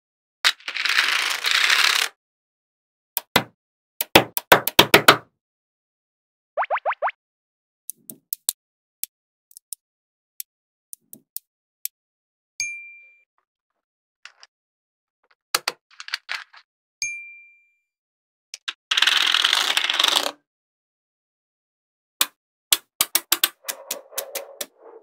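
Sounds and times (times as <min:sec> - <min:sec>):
magnet balls clicking: 0:22.7 - 0:24.7.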